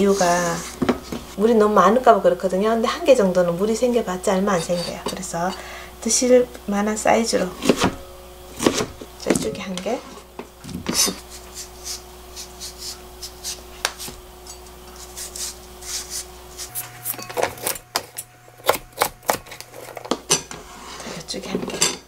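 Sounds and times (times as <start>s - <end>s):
knife chopping on cutting board: 8.6s - 8.9s.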